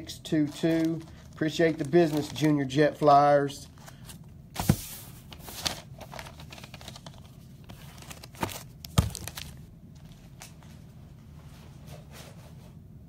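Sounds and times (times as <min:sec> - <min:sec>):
foil wrappers crinkling: 0:00.2 - 0:10.6
cards being handled: 0:00.4 - 0:02.6, 0:03.6 - 0:10.8.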